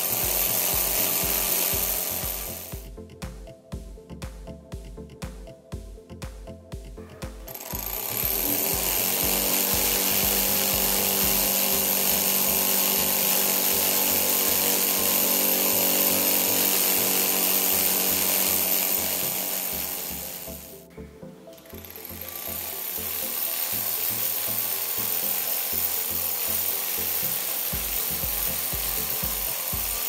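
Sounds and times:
engine whir with high hiss: 0.0 - 2.8, 7.5 - 20.8, 22.1 - 30.0
background music with bass line: 0.0 - 30.0.

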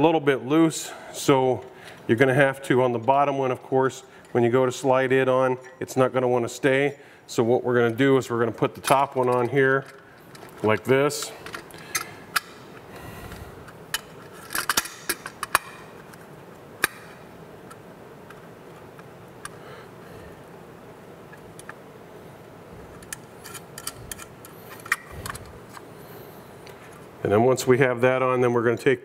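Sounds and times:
metal clips clicking: 13.7 - 16.2, 23.0 - 25.8.

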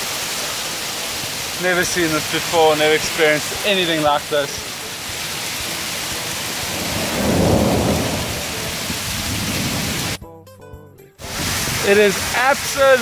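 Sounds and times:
torrential rain pouring: 0.0 - 10.2, 11.2 - 13.0
low rumble of thunder: 6.4 - 10.2.

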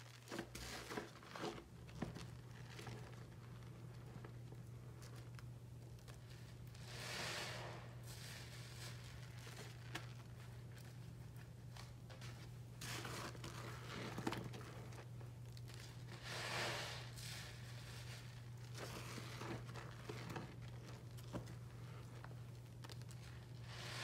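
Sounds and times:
wet crunching of crumbly block: 0.0 - 24.0
foamy water hissing: 6.9 - 8.2, 16.2 - 17.5.

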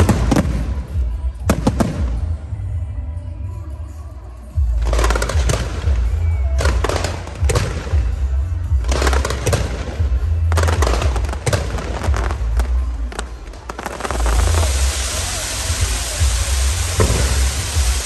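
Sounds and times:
fireworks bangs and crackling: 0.0 - 2.7, 4.6 - 18.0.

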